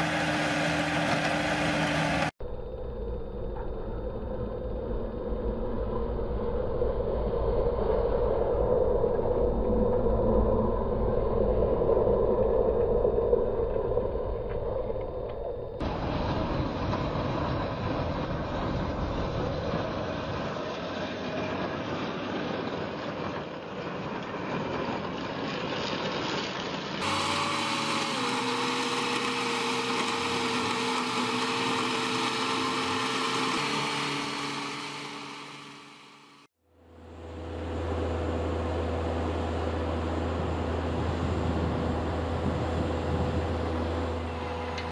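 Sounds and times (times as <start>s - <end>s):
tractor engines running: 0.0s - 2.4s, 15.8s - 44.9s
steady whine: 0.0s - 24.2s, 26.9s - 44.9s.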